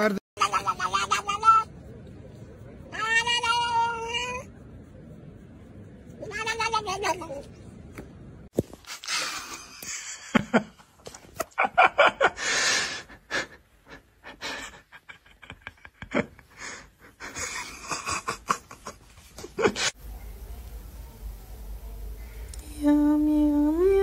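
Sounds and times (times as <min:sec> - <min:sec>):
person laughing breathily: 0:12.2 - 0:20.0.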